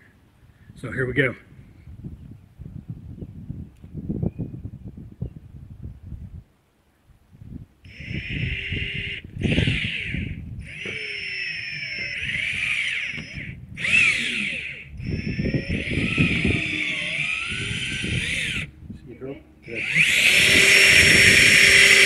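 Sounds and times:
drill bit grinding: 0:07.9 - 0:18.7, 0:19.6 - 0:22.0
cordless drill motor whine: 0:07.9 - 0:18.8, 0:19.6 - 0:22.0.

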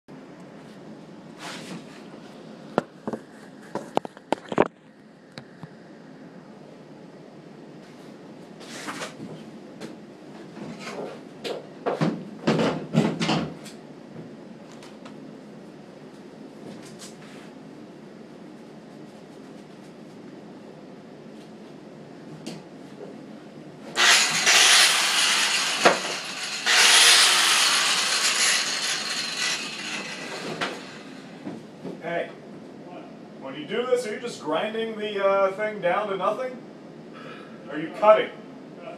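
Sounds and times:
angle grinder cutting metal: 0:24.0 - 0:31.4.

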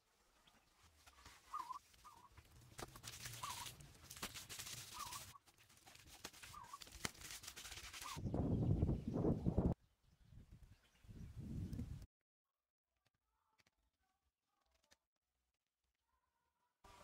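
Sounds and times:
bird wavering chirp: 0:01.4 - 0:02.3.

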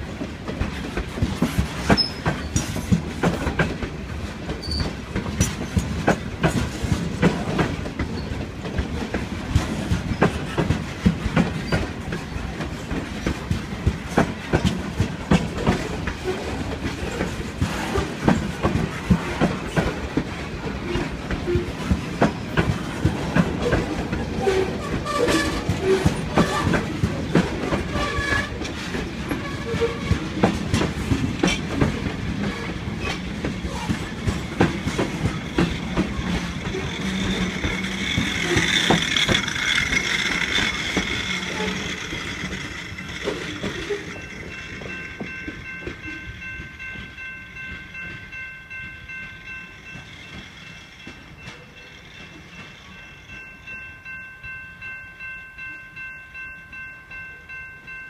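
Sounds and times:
freight train wheels clicking: 0:00.0 - 0:55.0
crossing bell ringing: 0:24.2 - 0:58.0.

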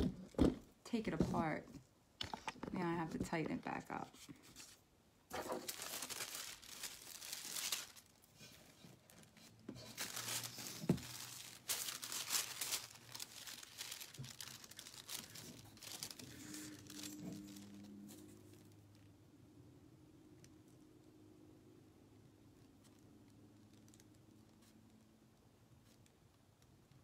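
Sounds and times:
paper crinkling and rustling: 0:03.7 - 0:18.7.

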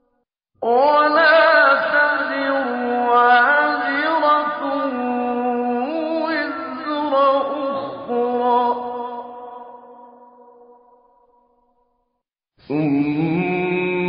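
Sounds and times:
man chanting melodically: 0:00.7 - 0:09.5.

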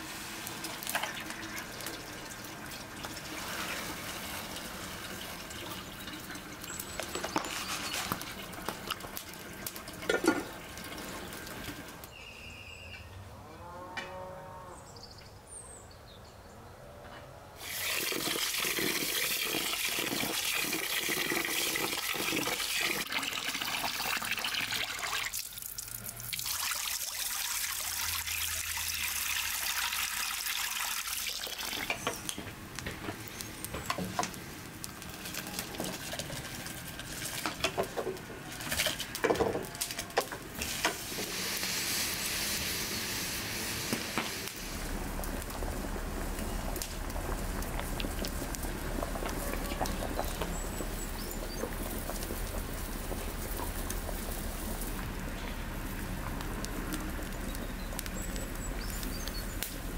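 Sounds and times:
water pouring and splashing: 0:00.0 - 0:12.1, 0:17.6 - 0:59.9
pot of water boiling: 0:00.0 - 0:12.2, 0:17.6 - 0:59.9
wooden spoon stirring pot: 0:05.5 - 0:11.3, 0:35.0 - 0:41.2.

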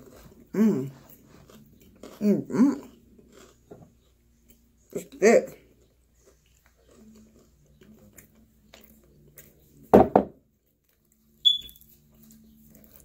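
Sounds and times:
bottle knocking on wooden board: 0:10.0 - 0:10.4
short high-pitched beep: 0:11.4 - 0:11.8.

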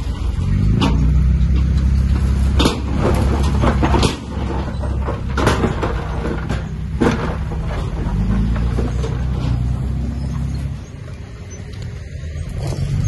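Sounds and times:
heavy diesel machine engine: 0:00.0 - 0:13.0
sharp metal knocks and clanks: 0:00.7 - 0:10.6.

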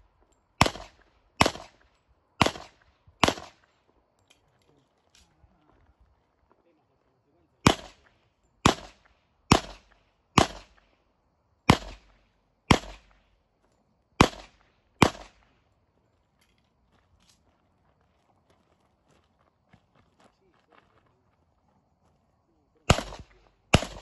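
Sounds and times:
handgun shots with echo: 0:00.6 - 0:03.7, 0:07.6 - 0:10.9, 0:11.7 - 0:13.2, 0:14.2 - 0:15.5, 0:22.9 - 0:24.0.

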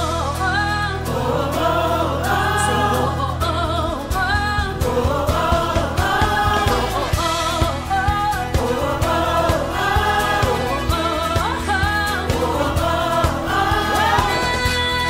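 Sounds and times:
gospel choir singing: 0:00.9 - 0:15.0
low beats: 0:01.0 - 0:15.0
band accompaniment: 0:04.4 - 0:15.0.

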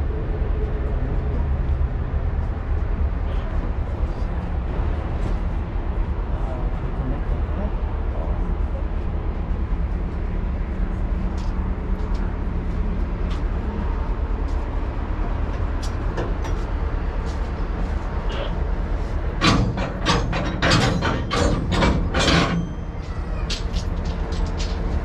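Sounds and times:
vehicle engine rumble: 0:00.0 - 0:25.0
sharp loud clacks and knocks: 0:19.4 - 0:25.0.

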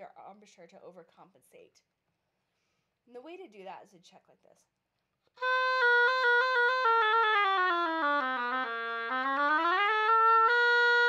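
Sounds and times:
oboe playing a scale: 0:05.4 - 0:11.0.

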